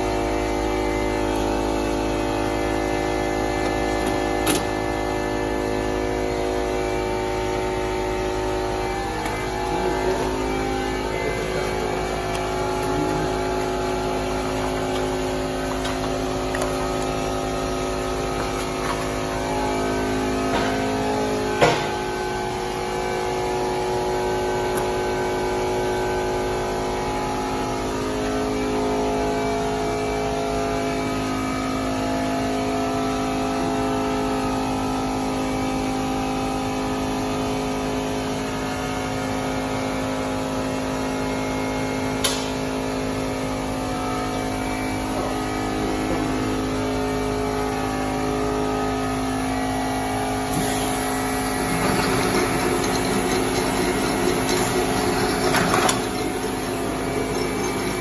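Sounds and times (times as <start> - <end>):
folding machine humming: 0.0 - 58.0
sharp click: 42.2 - 42.6.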